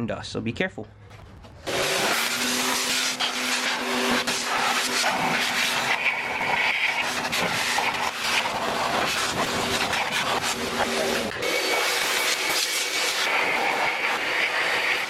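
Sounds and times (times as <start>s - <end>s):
air dryer blowing air: 1.6s - 15.0s.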